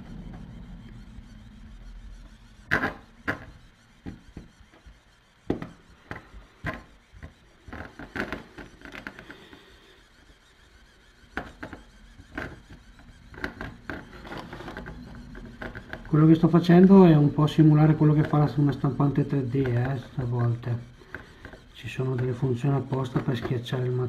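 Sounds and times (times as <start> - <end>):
pen nozzle tapping on plastic: 2.7 - 4.9, 5.5 - 9.3, 11.3 - 16.1, 21.0 - 22.3.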